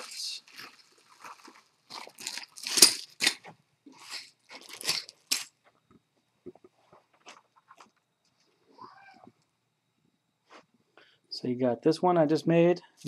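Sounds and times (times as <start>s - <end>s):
plastic bags crinkling: 0.0s - 5.6s.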